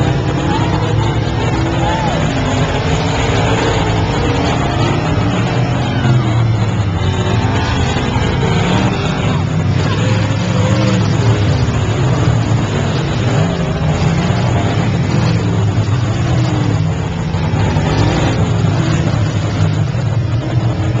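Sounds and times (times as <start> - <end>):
race car engines revving: 0.0 - 21.0.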